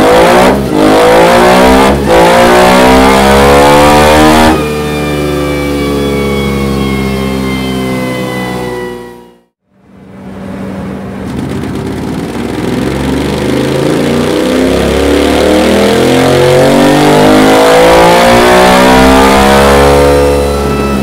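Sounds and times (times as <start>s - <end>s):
motorcycle engine revving: 0.0s - 9.5s, 10.8s - 21.0s.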